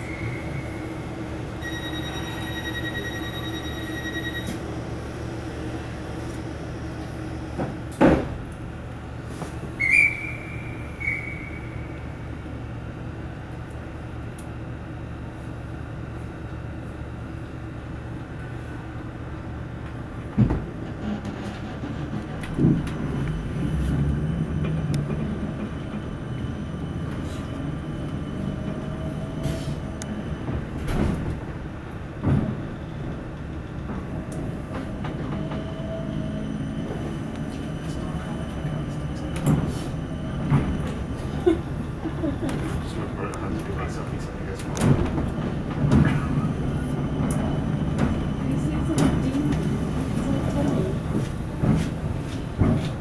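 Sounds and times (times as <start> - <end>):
high whistle-like tone: 0.0 - 0.8, 9.8 - 11.9
train equipment humming: 0.0 - 53.0
high pulsing beep tone: 1.6 - 4.6.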